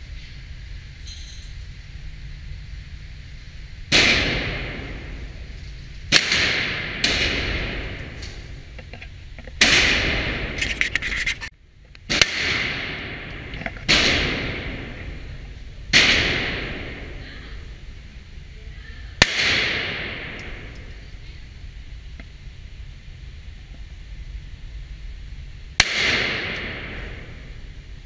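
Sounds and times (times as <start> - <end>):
pistol shots echoing: 3.9 - 5.3, 6.1 - 8.5, 12.1 - 15.2, 15.9 - 17.1, 19.2 - 20.8, 25.8 - 27.6.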